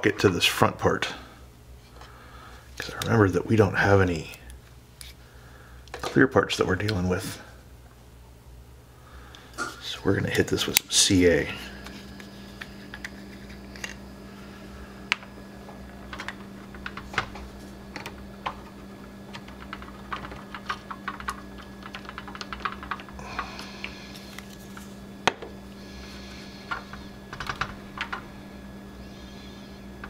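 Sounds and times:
steady low hum: 0.0s - 30.0s
plastic parts clicking and tapping: 16.1s - 18.7s.

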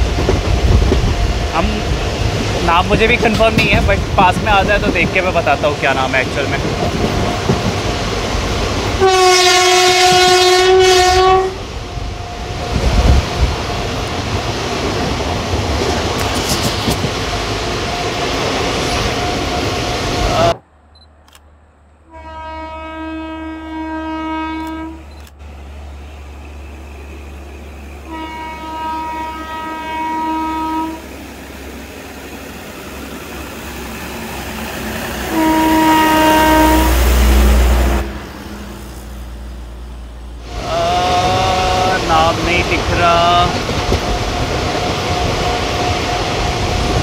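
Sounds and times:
train low rumble: 0.0s - 47.0s
train rushing past: 0.0s - 47.0s
locomotive horn blasts: 9.0s - 11.6s, 22.0s - 25.1s, 28.0s - 31.1s, 35.2s - 38.2s.

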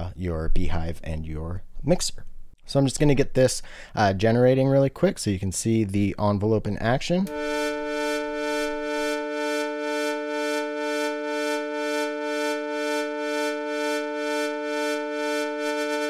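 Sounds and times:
pulsing synthesizer tone: 7.3s - 16.0s.

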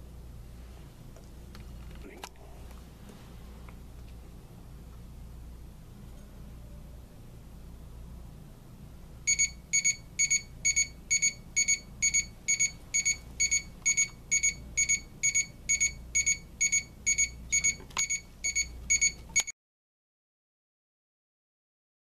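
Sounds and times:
alarm clock double beeps: 9.3s - 19.5s.

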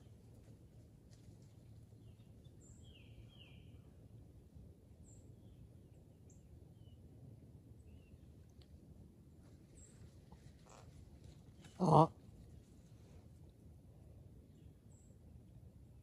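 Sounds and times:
faint low rumble: 0.0s - 16.0s
bird chirps: 2.0s - 3.9s.

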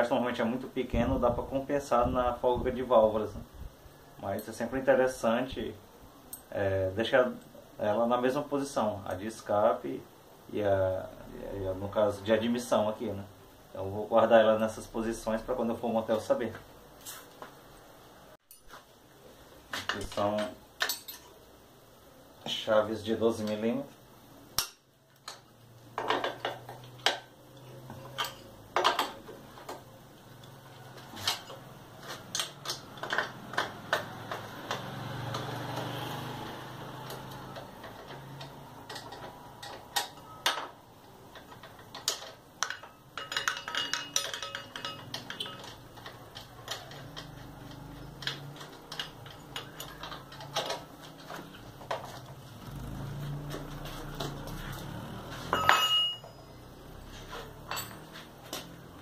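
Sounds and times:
wrench clicking on metal: 41.4s - 51.2s.

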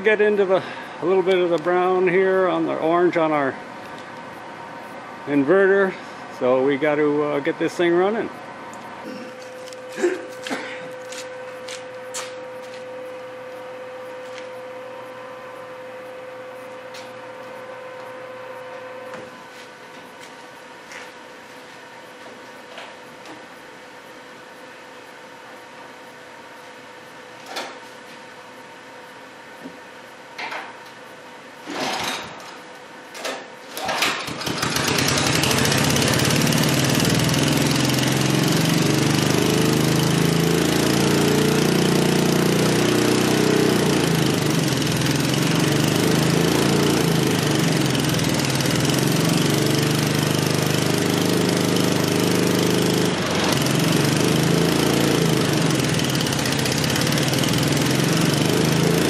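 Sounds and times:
engine cranking: 33.8s - 59.0s
small engine running: 33.8s - 59.0s.

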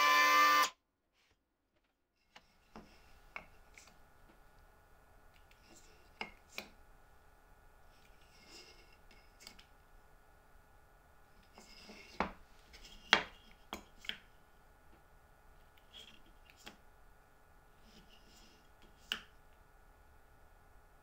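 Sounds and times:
soft sliding and rubbing: 11.5s - 13.6s, 17.8s - 19.1s.

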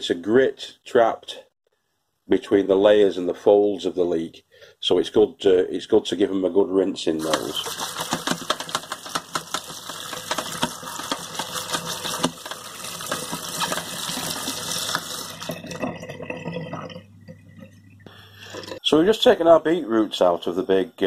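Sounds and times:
tap water splashing into sink: 7.2s - 17.4s.

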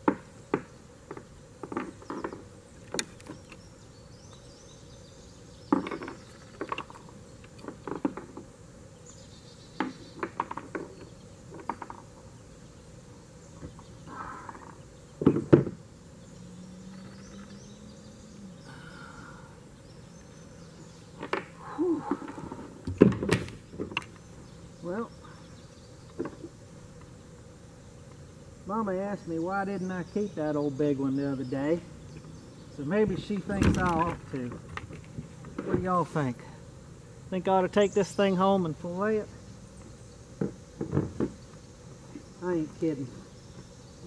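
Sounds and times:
faint insect buzzing: 0.0s - 44.0s
knocks and thumps on kayak: 15.2s - 15.8s.

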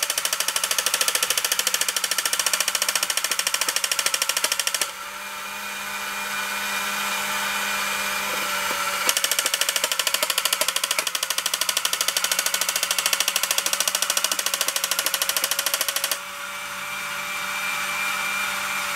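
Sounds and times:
toy firing rattle: 0.0s - 5.0s, 8.5s - 16.2s
toy motor and gear whirr: 0.0s - 18.9s.

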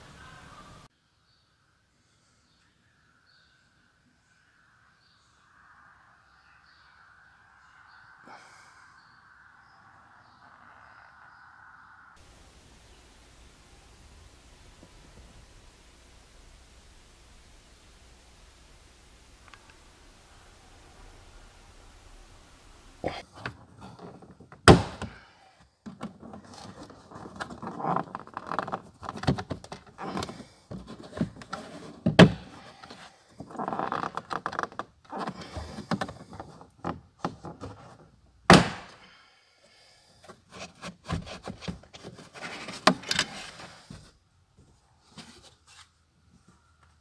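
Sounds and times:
plastic rubbing and scraping: 25.9s - 38.2s, 40.2s - 44.1s.

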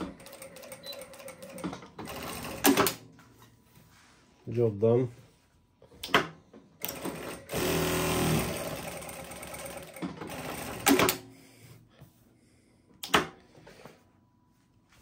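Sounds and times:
sewing machine stitching: 6.8s - 11.2s.

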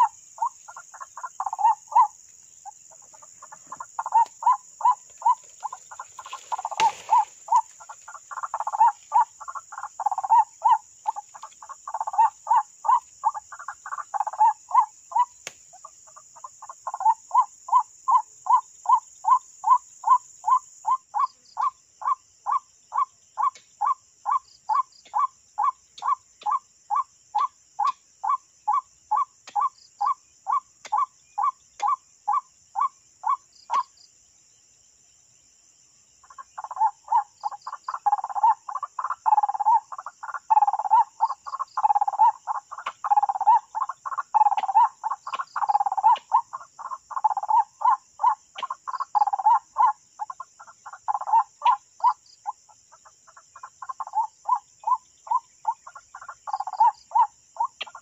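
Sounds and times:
waterhen calling: 0.0s - 2.2s, 2.9s - 15.3s.

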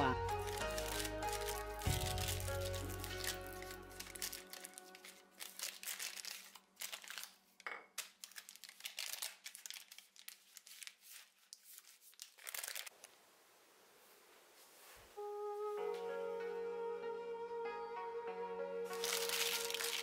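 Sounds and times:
wax paper crinkling: 0.2s - 13.2s, 18.9s - 20.0s.

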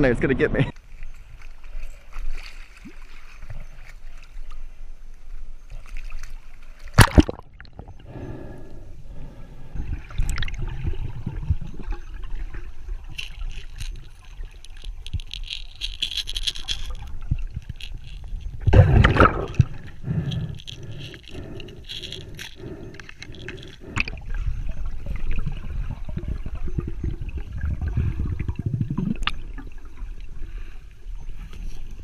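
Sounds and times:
water splashing and sloshing: 0.8s - 4.7s, 5.7s - 8.2s, 9.8s - 32.0s
muffled underwater rumble and bubbling: 17.1s - 32.0s.

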